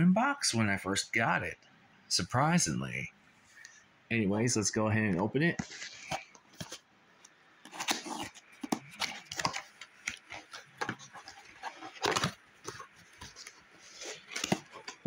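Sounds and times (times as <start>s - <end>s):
cardboard box being opened: 7.7s - 15.0s.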